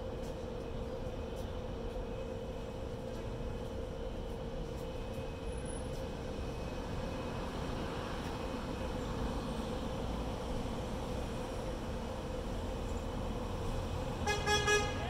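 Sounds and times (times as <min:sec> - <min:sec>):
city street traffic: 0:00.0 - 0:15.0.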